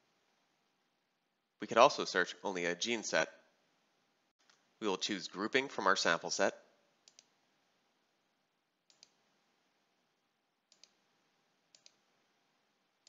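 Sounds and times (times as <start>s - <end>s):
faint computer mouse clicks: 7.0s - 7.3s, 8.9s - 9.2s, 10.7s - 11.0s, 11.7s - 12.0s.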